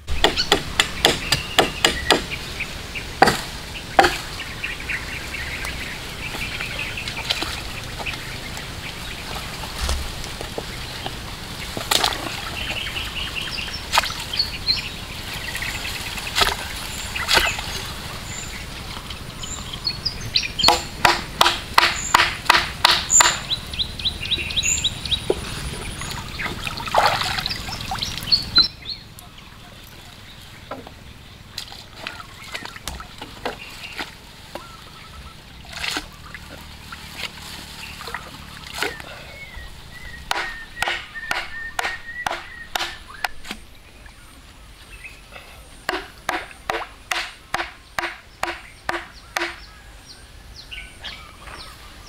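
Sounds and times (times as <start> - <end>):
birds chirping: 0.0 - 52.0
water splashing: 2.0 - 28.7, 30.6 - 44.3, 45.4 - 49.6
pole knocking on wood: 40.3 - 43.5, 45.9 - 49.6.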